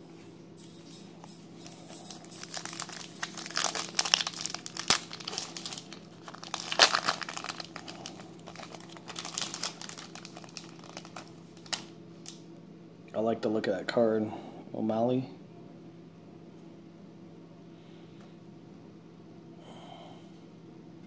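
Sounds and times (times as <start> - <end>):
wrapper tearing and crinkling: 2.4 - 12.4.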